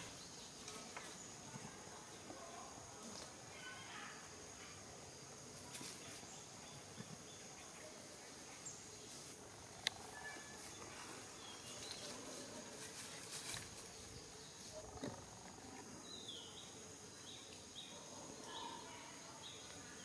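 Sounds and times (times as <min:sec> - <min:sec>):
high insect drone: 0:00.0 - 0:20.0
rustling in dry leaves: 0:08.3 - 0:14.9.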